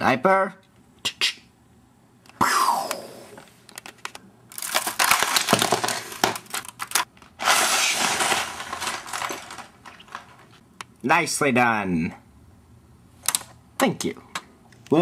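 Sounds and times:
plastic bricks clattering down: 4.5s - 10.6s.

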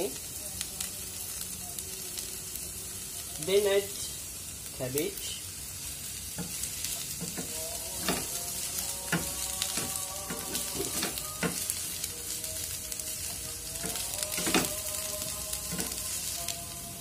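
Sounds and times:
vegetables sizzling in a frying pan: 0.0s - 17.0s.

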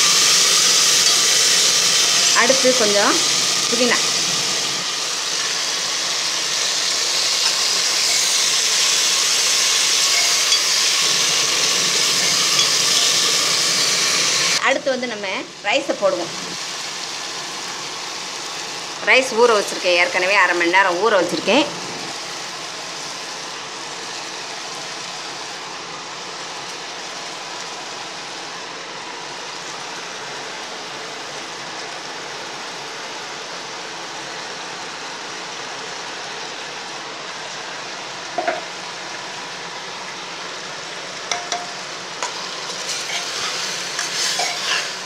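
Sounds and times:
oil sizzling: 0.0s - 45.0s
ladle stirring: 9.7s - 13.4s, 42.2s - 45.0s.

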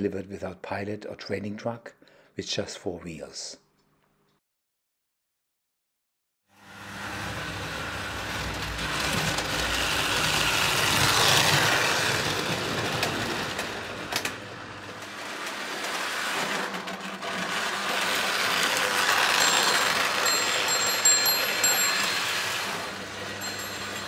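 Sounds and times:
toy train motor whirring and rattling: 6.6s - 24.0s.

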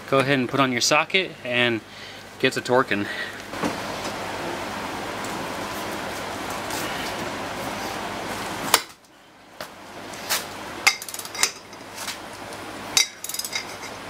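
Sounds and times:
metal tools clinking: 10.9s - 11.9s, 13.0s - 14.0s.

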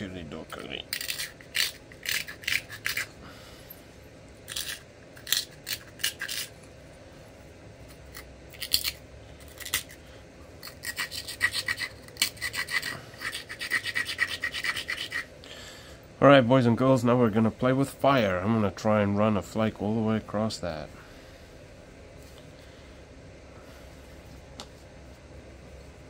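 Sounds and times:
stone scraping flint edge: 0.9s - 3.1s, 4.5s - 6.5s, 10.6s - 15.3s.

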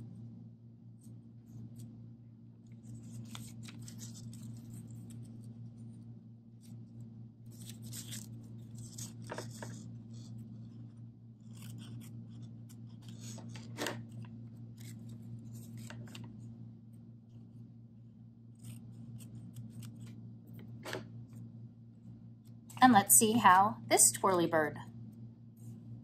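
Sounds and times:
steady low hum: 0.0s - 26.0s
paper rustling: 2.8s - 5.6s, 7.5s - 16.4s
scissors snipping paper: 7.5s - 10.4s, 11.4s - 14.2s, 14.8s - 16.3s, 18.6s - 20.2s.

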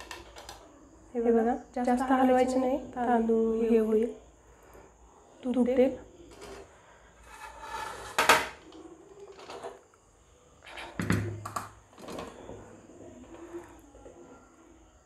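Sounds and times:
metal utensils scraping a pot: 6.3s - 9.8s, 12.0s - 14.5s.

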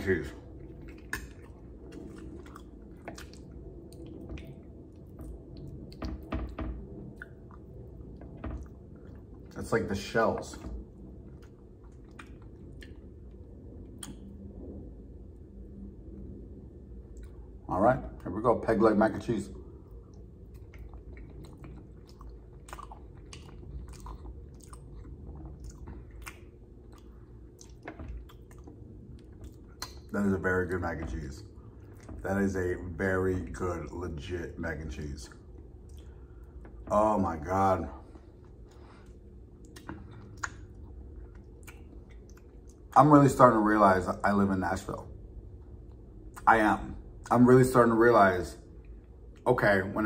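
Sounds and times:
wet squishing of mac and cheese: 0.0s - 14.4s, 19.0s - 34.3s, 35.2s - 44.1s.

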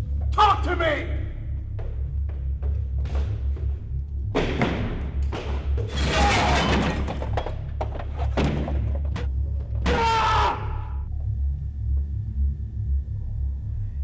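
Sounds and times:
low pulsing film score drone: 0.0s - 6.1s, 6.7s - 14.0s
heavy thuds and crashes: 4.3s - 10.1s.

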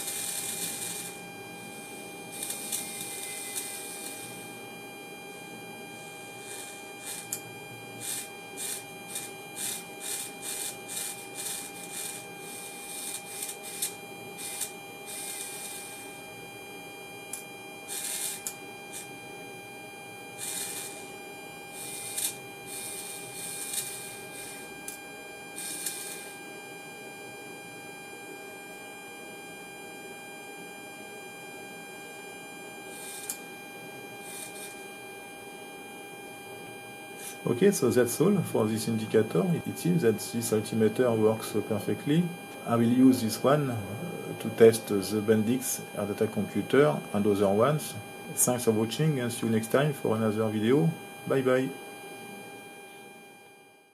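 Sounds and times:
servo motor whirring: 0.0s - 1.2s, 2.3s - 4.2s, 6.4s - 7.4s, 8.0s - 16.0s, 17.9s - 19.1s, 20.4s - 21.1s, 21.7s - 24.7s, 25.6s - 26.4s, 32.9s - 33.4s, 34.2s - 34.8s
electrical hum with whine: 0.0s - 53.9s.

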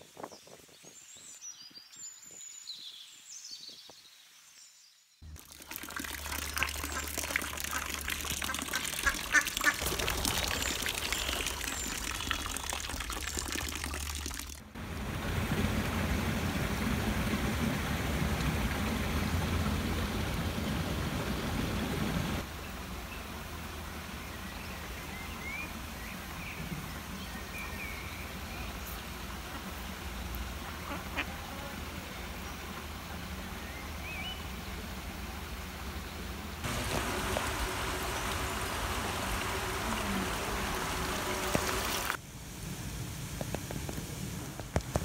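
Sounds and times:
watery hiss: 5.4s - 20.2s, 36.6s - 45.0s
ducks calling: 6.7s - 12.3s, 30.6s - 31.5s
loud even hiss: 36.6s - 45.0s.

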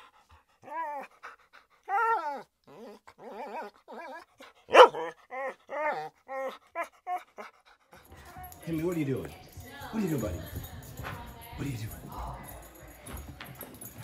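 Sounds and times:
dog whining: 0.6s - 7.6s
dog barking: 4.7s - 5.2s.

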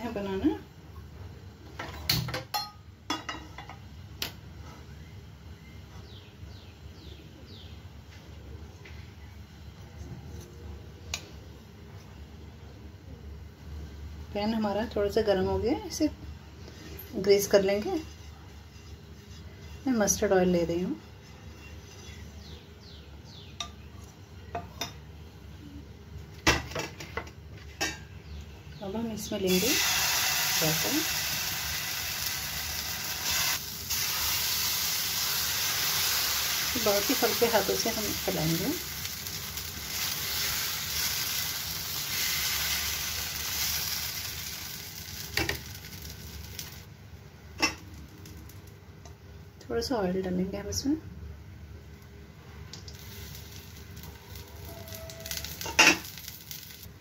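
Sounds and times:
faint bird chirps: 4.6s - 7.8s.

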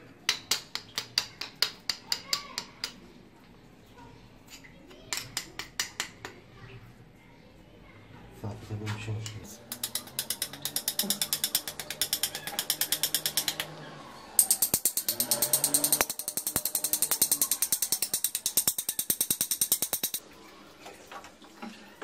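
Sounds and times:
metal blade scraping marble: 9.7s - 13.7s, 14.4s - 20.2s.

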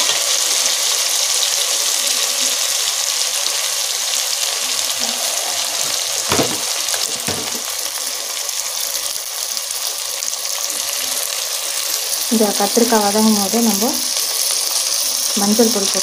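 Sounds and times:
vegetables sizzling in hot oil: 0.0s - 16.0s
knock: 6.2s - 7.6s.

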